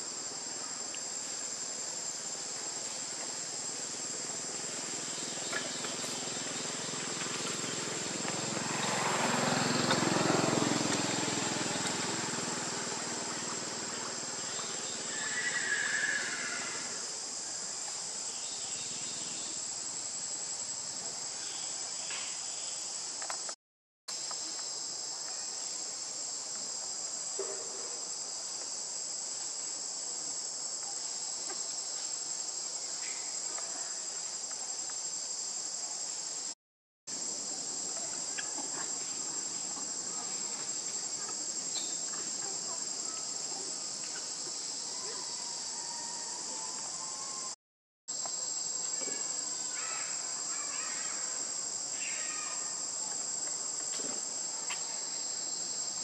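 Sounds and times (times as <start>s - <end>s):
high-pitched insect drone: 2.8s - 17.4s.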